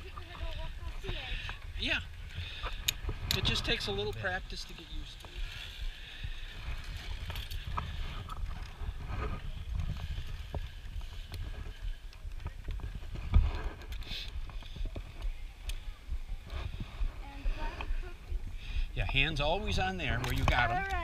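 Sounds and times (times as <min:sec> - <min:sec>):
wind on microphone: 0:00.0 - 0:21.0
climbing gear clicks on cables: 0:01.3 - 0:15.8, 0:20.1 - 0:21.0.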